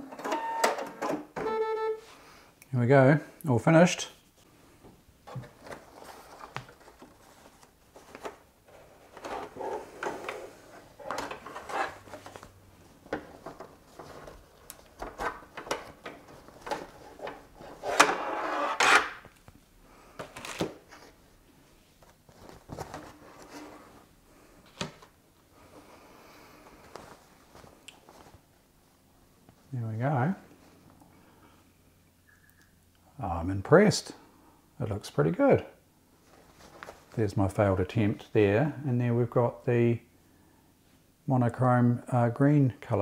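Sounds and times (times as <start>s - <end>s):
fabric rustling: 20.8s - 24.2s, 26.6s - 29.6s, 36.1s - 37.2s.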